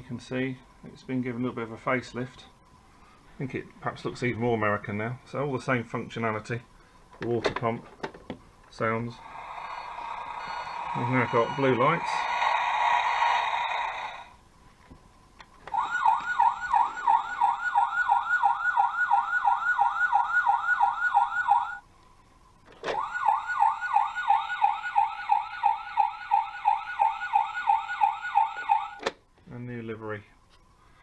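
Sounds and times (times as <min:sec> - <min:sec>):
toy siren yelping: 0:09.2 - 0:14.3, 0:15.7 - 0:21.8, 0:22.9 - 0:29.0.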